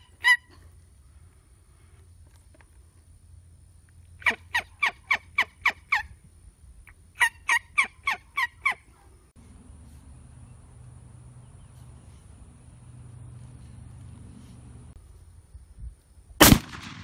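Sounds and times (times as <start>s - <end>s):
turkeys calling: 4.2s - 6.1s, 6.9s - 8.9s
faint low hum: 8.8s - 16.4s.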